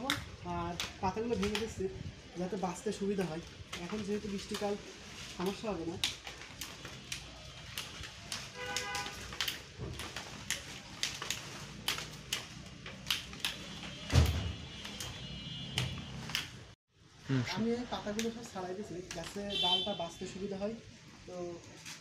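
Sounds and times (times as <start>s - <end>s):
leaf stalks snapping: 0.0s - 1.9s, 2.6s - 16.7s, 18.1s - 19.5s.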